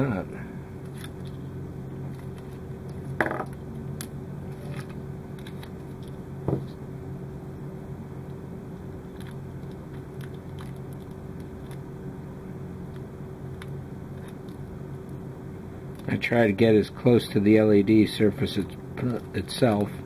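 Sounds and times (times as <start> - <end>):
low hum: 0.0 - 20.0
tape crinkling and clicking: 2.1 - 6.8, 9.1 - 11.8.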